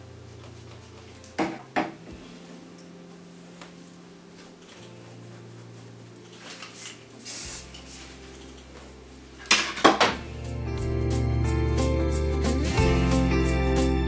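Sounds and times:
quiet background music: 0:00.0 - 0:14.0
short hiss: 0:06.8 - 0:08.1.

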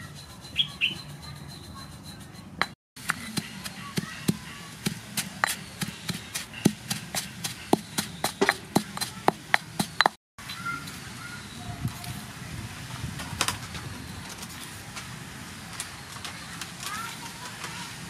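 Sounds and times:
stone pestle pounding in mortar: 0:00.0 - 0:10.2.

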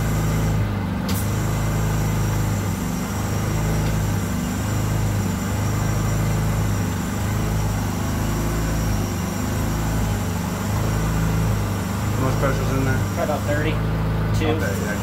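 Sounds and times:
motor humming: 0:00.0 - 0:15.0.

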